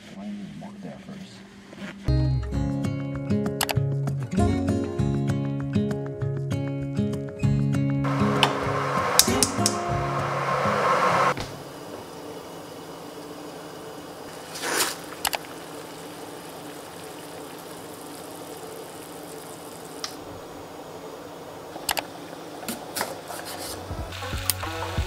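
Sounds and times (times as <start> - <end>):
water boiling in a pot: 8.1 - 25.0.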